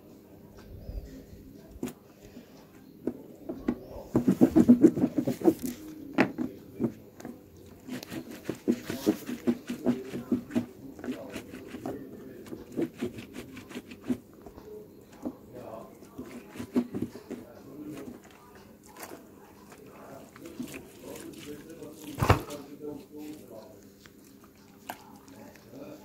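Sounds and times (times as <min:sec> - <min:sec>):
cloth scrubbed on washboard: 0:04.1 - 0:05.7, 0:07.9 - 0:12.0, 0:12.6 - 0:14.2, 0:16.1 - 0:17.4.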